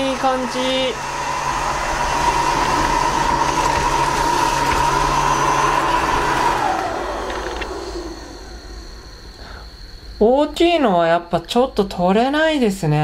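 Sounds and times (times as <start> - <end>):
robot vacuum cleaner whining: 0.0 - 10.2.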